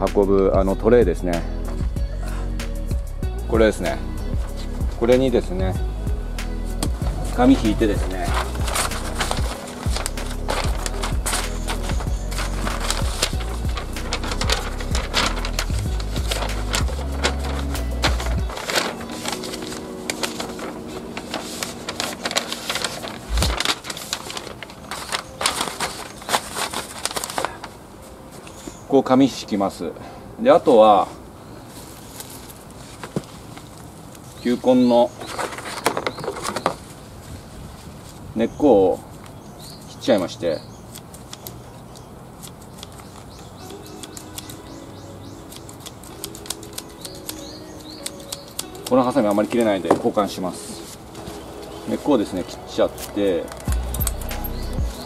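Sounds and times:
paper sheets rustling and crackling: 6.8 - 28.7, 31.7 - 38.3, 42.3 - 55.0
bird chirping: 34.2 - 37.0, 38.3 - 55.0.

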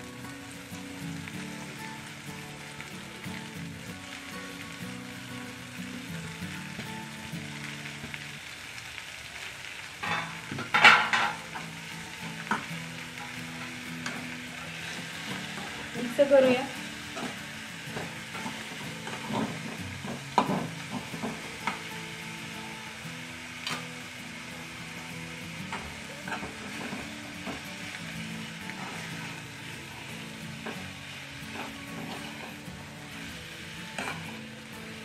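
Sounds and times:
leaves sizzling in oiled pan: 0.0 - 35.0
metal spatula scraping pan: 31.5 - 32.6.

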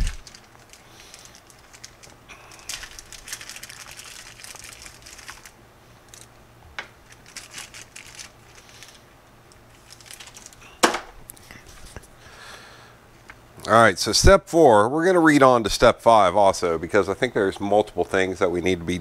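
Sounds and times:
packaging crinkling: 0.0 - 11.1.

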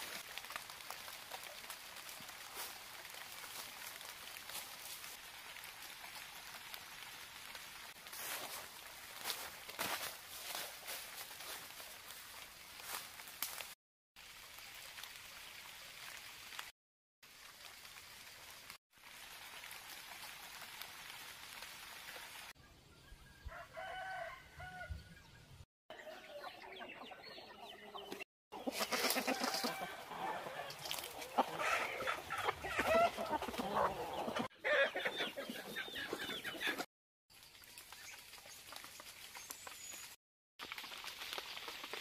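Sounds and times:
rooster crowing: 23.5 - 25.0, 29.2 - 30.9
chickens clucking: 26.0 - 36.9.

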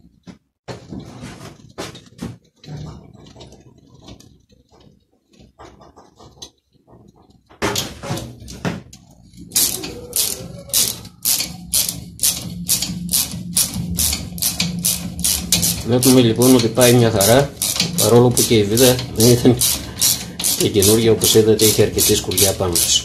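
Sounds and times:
screw scraping and clicking: 8.2 - 23.0
sharp grating clicks: 9.0 - 23.0.

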